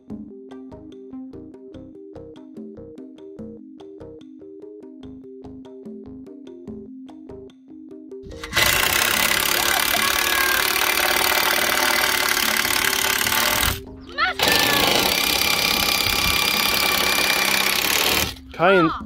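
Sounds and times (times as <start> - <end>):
cordless drill driving screw into wood: 8.3 - 18.5.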